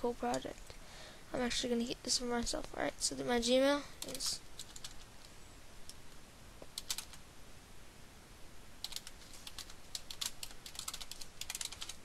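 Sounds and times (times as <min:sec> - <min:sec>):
keyboard typing: 0:04.0 - 0:05.1, 0:06.6 - 0:07.2, 0:08.8 - 0:12.0.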